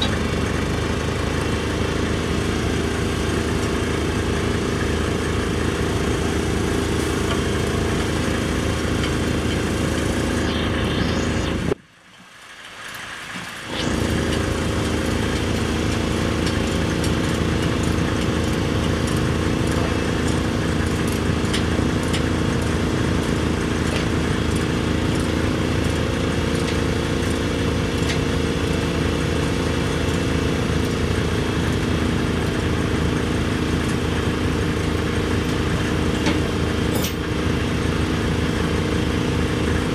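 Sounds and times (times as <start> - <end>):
heavy engine idling: 0.0 - 11.8, 12.4 - 39.9.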